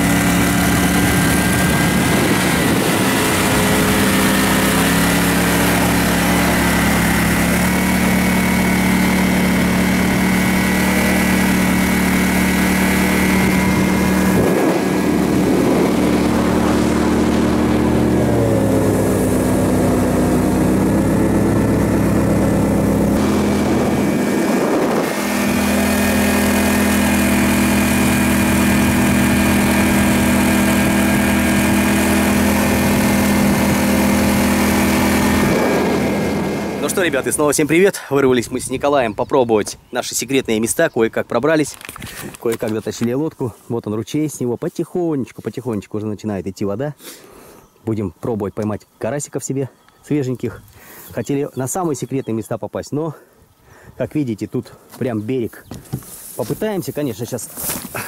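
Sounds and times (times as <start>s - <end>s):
boat engine droning: 0.0s - 39.2s.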